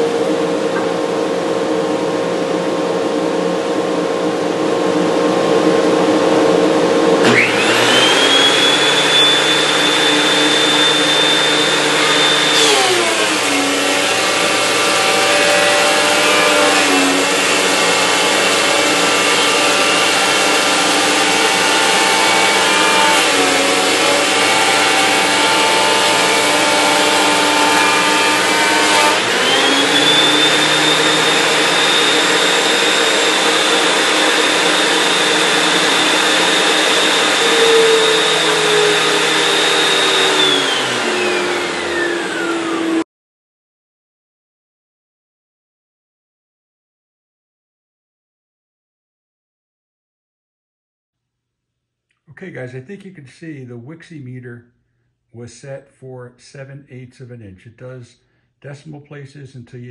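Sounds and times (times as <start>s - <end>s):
planer motor whining: 0.0s - 43.0s.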